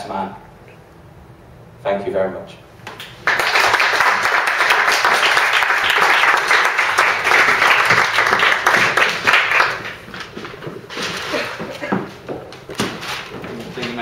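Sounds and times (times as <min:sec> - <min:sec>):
small audience applauding: 0:02.9 - 0:10.5.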